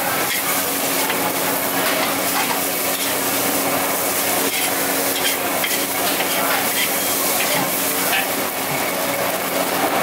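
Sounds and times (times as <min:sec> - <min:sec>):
noodles sizzling in a wok: 0:00.0 - 0:10.0
spatula scraping a wok: 0:00.2 - 0:01.2, 0:01.8 - 0:08.2.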